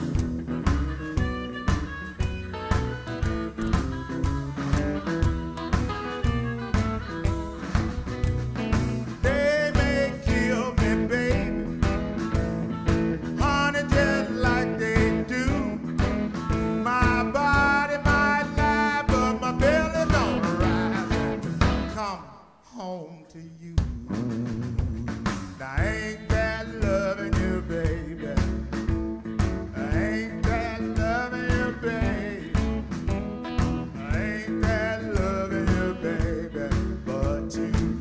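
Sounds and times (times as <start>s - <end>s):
harmonica: 0.0s - 22.0s
blues band playing: 0.0s - 22.4s, 23.6s - 38.0s
person singing: 9.1s - 12.3s, 12.9s - 28.8s, 29.7s - 32.9s, 33.8s - 38.0s.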